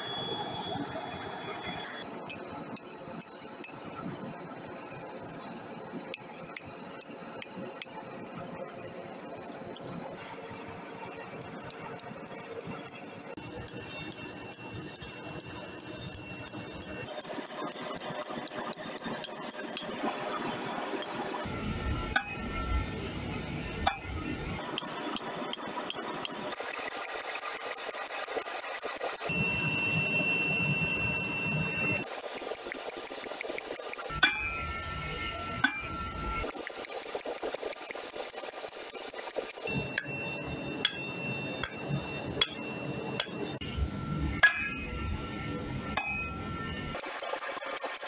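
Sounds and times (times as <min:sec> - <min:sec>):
hammer striking hot steel on anvil: 0:11.7 - 0:20.1, 0:22.2 - 0:22.4, 0:23.8 - 0:29.3, 0:32.0 - 0:34.7, 0:35.6 - 0:43.6, 0:44.4 - 0:44.9, 0:45.9 - 0:46.4.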